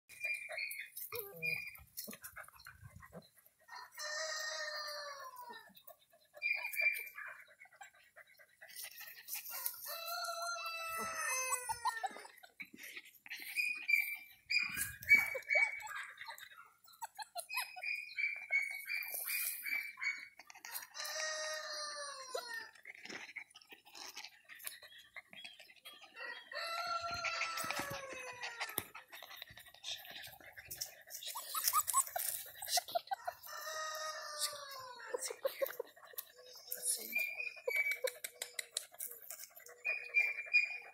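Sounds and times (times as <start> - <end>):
rooster crowing: 26.2 - 28.2.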